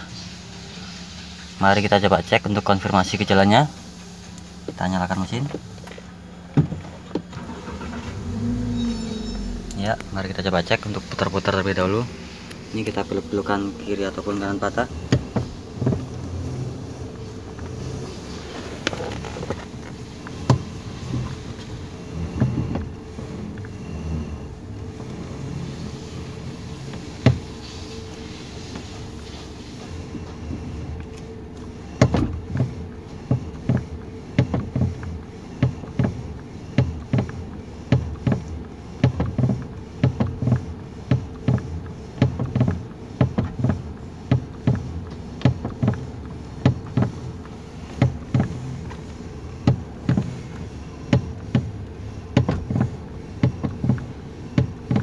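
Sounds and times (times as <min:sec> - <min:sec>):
car engine idling: 0:00.0 - 0:55.0
steering column clicking knocks: 0:36.8 - 0:55.0.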